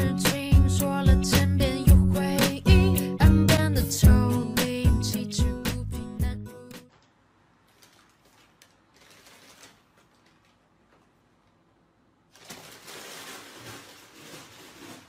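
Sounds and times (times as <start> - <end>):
paper bag rustling: 7.6 - 11.2, 12.3 - 15.0
paper bag scraping wooden floor: 12.3 - 15.0.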